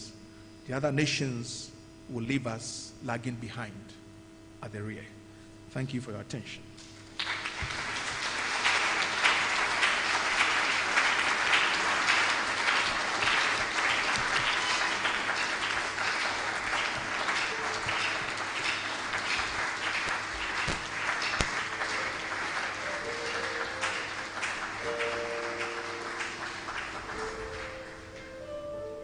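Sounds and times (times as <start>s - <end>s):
audience applauding: 7.0s - 28.3s.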